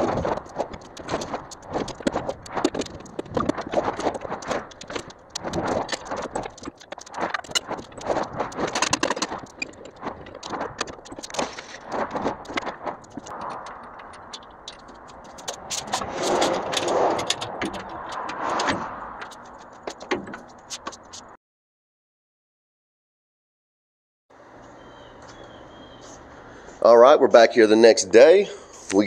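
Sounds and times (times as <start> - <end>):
scraping metal rattle: 0.0 - 21.4.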